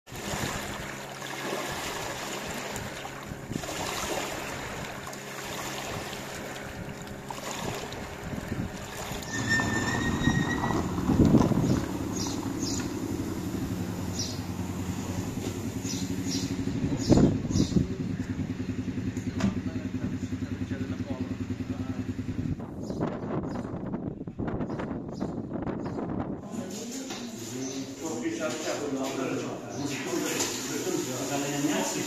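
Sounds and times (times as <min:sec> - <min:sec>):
small waves washing over stones: 0:00.1 - 0:09.8
car engine idling: 0:09.7 - 0:22.8.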